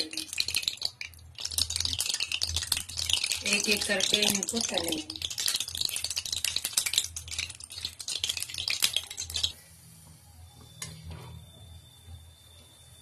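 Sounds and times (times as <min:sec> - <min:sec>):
hot oil crackling and sputtering: 0:00.0 - 0:09.6.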